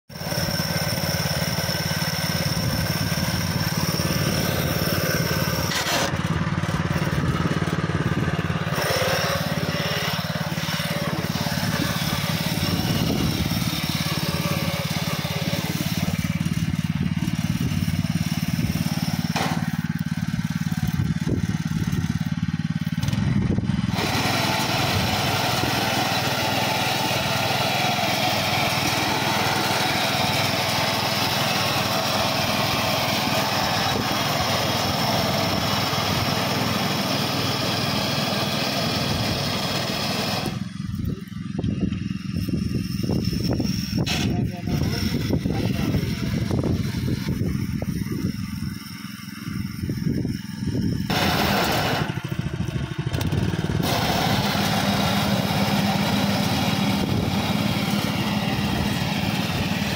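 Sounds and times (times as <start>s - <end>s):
cutter bar cutting grass: 0.1s - 59.9s
petrol engine running under load: 0.1s - 59.9s.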